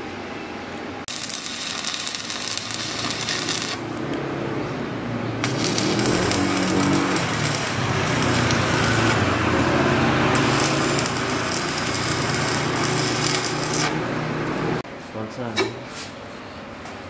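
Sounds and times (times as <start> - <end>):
low machine hum: 0.0 - 15.0
welding arc crackling hiss: 1.1 - 4.2, 5.4 - 14.8.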